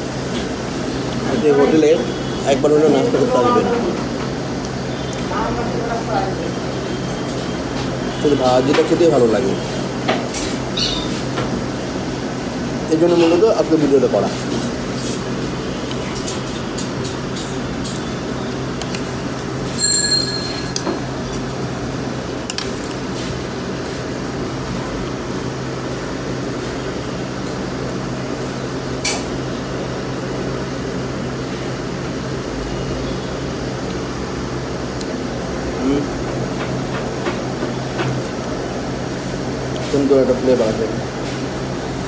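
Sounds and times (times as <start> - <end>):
eatery background din: 0.4 - 24.1
tableware clinking: 19.8 - 21.1.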